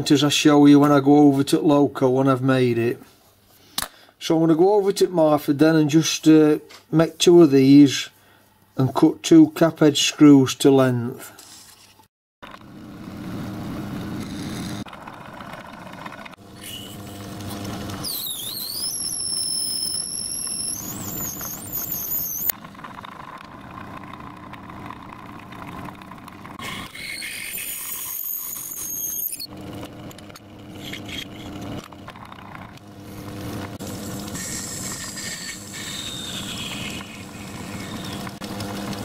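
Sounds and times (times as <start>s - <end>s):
high-pitched cutting squeal: 16.5s - 22.5s, 26.6s - 29.5s, 30.7s - 31.8s, 33.8s - 38.4s.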